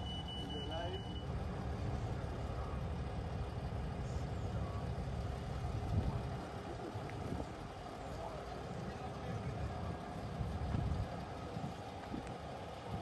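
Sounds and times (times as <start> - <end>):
diesel engine rumbling: 0.0 - 13.0.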